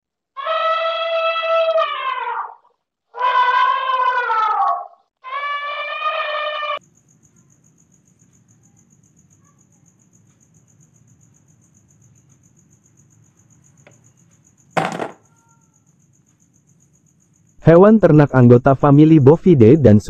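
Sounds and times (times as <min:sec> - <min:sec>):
elephant trumpeting: 0:00.4 - 0:06.8
crickets chirping: 0:05.3 - 0:20.0.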